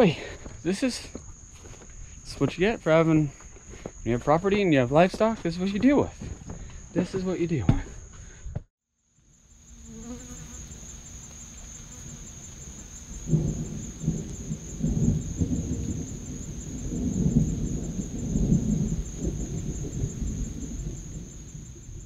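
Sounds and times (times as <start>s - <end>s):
thunder rumbling: 10.8s - 22.0s.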